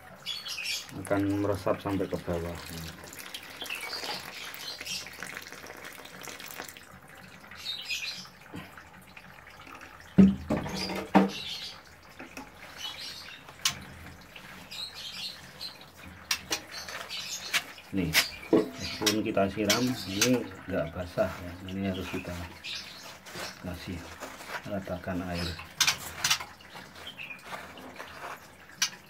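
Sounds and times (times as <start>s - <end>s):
birds chirping: 0.0s - 5.7s, 7.4s - 8.7s, 10.6s - 28.1s
water poured onto sand: 0.9s - 6.9s.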